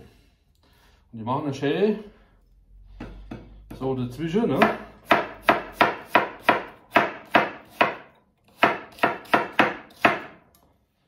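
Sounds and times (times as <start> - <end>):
knife chopping on wooden board: 3.0 - 3.9, 4.5 - 10.4.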